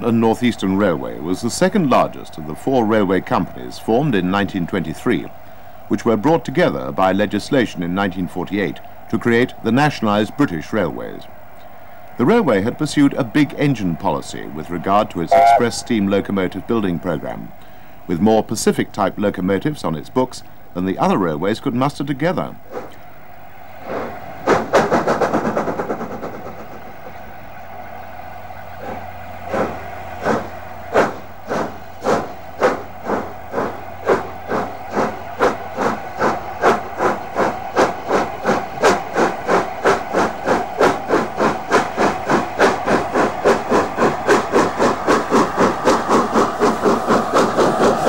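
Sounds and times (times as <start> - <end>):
steam locomotive exhaust beats: 0.0 - 48.0
rush of steam: 29.5 - 48.0.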